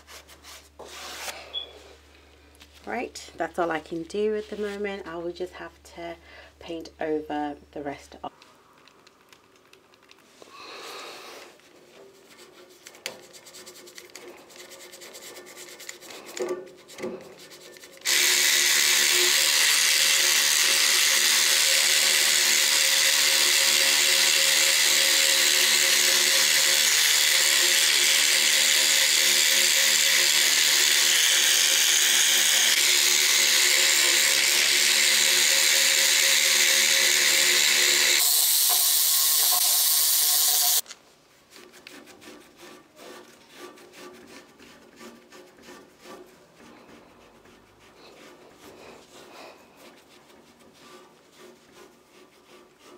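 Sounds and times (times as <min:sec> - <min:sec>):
electric scrubbing tool whirring: 0:18.0 - 0:40.8
rubbing and knocks: 0:41.5 - 0:52.9.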